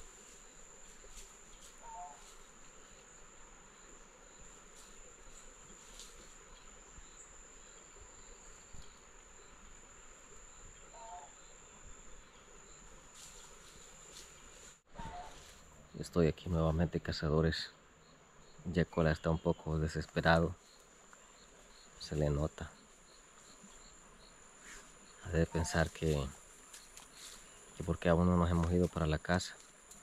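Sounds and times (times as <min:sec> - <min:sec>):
high-pitched insect trill: 0:20.2 - 0:30.0.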